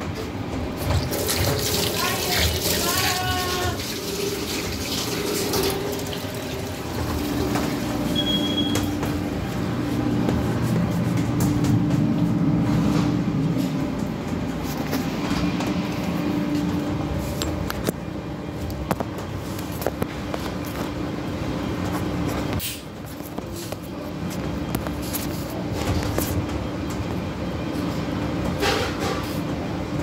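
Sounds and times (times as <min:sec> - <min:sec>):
kitchen machinery hum: 0:00.0 - 0:30.0.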